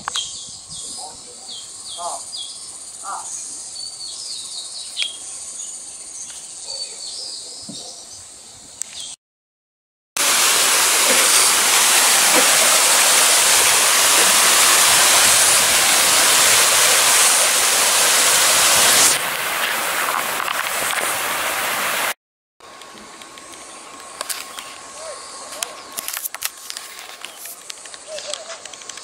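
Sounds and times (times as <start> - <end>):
water rushing over weir: 10.2 - 23.4.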